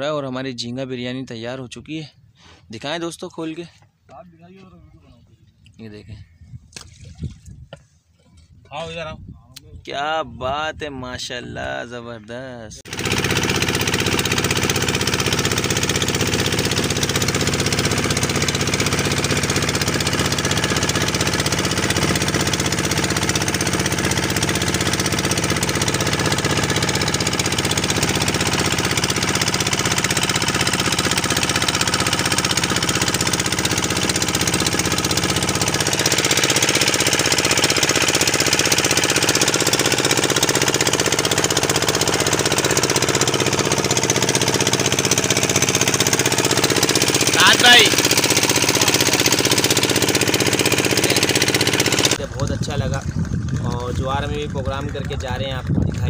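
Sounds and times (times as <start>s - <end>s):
boat engine running: 12.8s - 56.0s.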